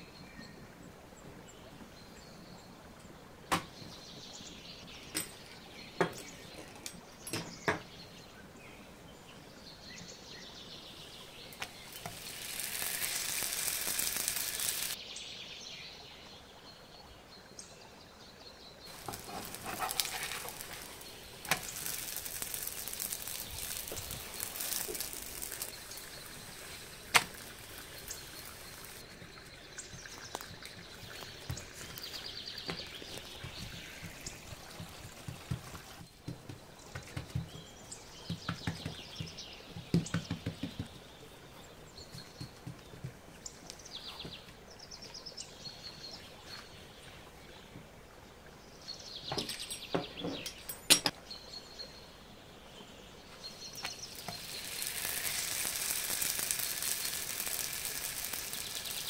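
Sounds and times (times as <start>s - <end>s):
food frying in a pan: 11.5s - 15.0s, 18.9s - 36.3s, 53.7s - 59.0s
cooking utensils clicking and scraping: 11.6s - 15.0s, 18.9s - 29.0s.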